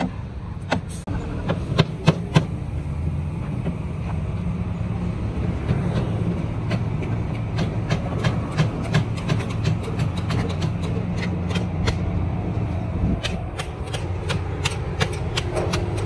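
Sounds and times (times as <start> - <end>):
steady low rumble: 11.0 - 16.0.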